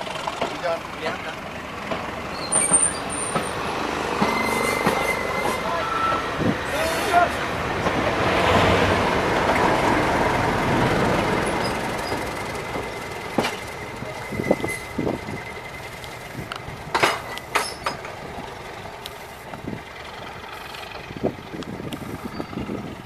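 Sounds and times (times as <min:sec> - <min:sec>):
diesel train passing: 0:00.0 - 0:23.0
sharp clicks and knocks: 0:12.1 - 0:13.8, 0:16.0 - 0:18.2.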